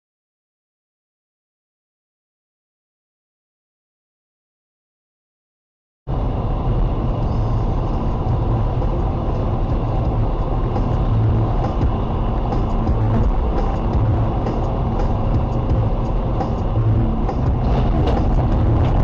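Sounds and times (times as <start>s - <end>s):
car road noise rumble: 6.1s - 19.0s.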